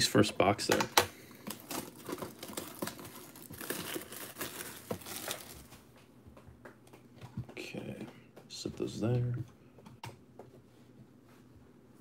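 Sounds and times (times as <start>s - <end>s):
plastic wrapping crinkling: 1.3s - 5.9s.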